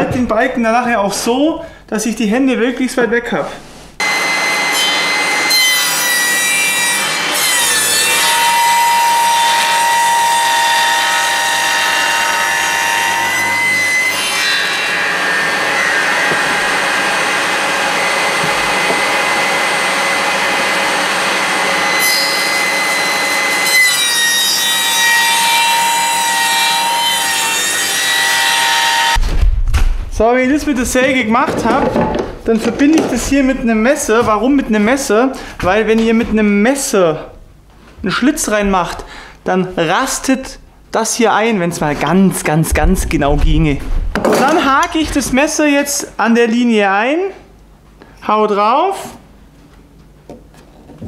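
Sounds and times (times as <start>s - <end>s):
table saw cutting wood: 4.0s - 29.2s.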